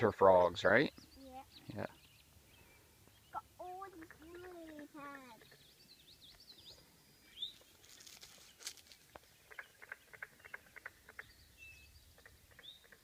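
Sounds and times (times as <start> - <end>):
frogs calling with knocks: 3.3 - 5.7, 9.1 - 11.4, 12.1 - 13.0.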